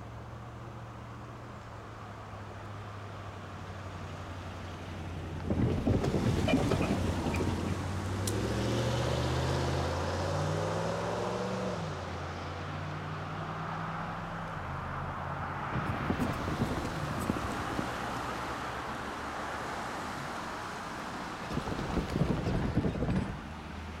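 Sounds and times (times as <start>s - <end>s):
train rumble and clatter: 21.4s - 23.6s.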